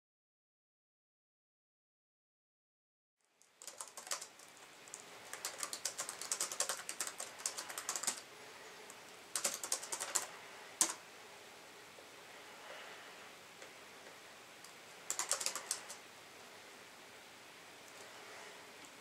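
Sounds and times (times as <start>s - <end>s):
laptop keyboard typing: 3.4s - 8.3s, 9.3s - 11.0s, 14.6s - 16.0s.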